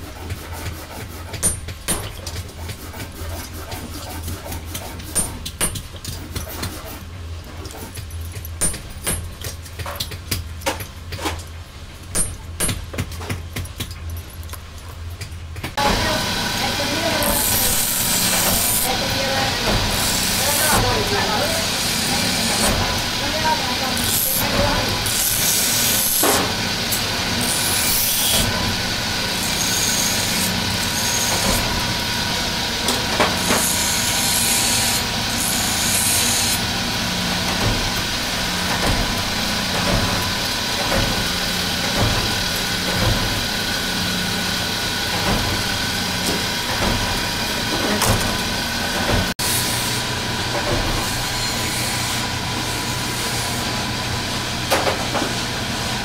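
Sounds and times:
machinery hum: 0:14.0 - 0:56.0
thin machine whine: 0:15.8 - 0:54.7.

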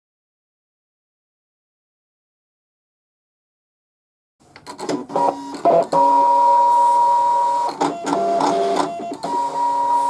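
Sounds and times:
cutting machine motors whining: 0:04.8 - 0:10.0.

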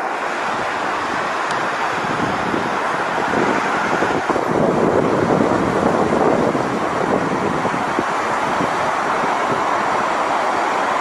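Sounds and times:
sea surf breaking: 0:00.0 - 0:11.0
wind: 0:00.0 - 0:11.0.

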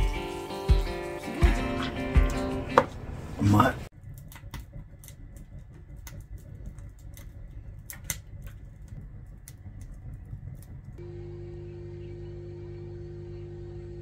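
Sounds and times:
wood fire crackling: 0:00.0 - 0:11.4
steady hum: 0:02.9 - 0:14.0
low rumble: 0:03.1 - 0:14.0.

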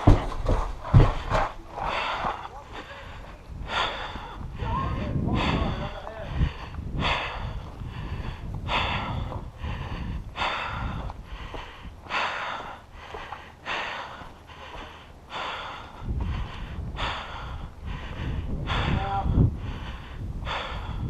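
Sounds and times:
low rumble: 0:00.0 - 0:13.2
person breathing hard: 0:00.0 - 0:21.0.

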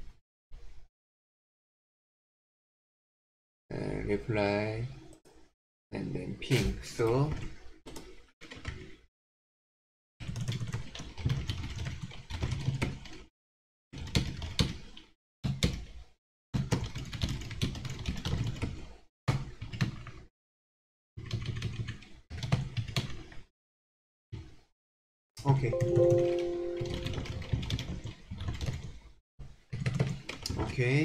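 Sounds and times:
fast typing on keyboard: 0:10.2 - 0:13.3, 0:14.0 - 0:14.7, 0:16.6 - 0:18.8, 0:21.2 - 0:23.2, 0:25.8 - 0:29.0, 0:29.7 - 0:30.4.

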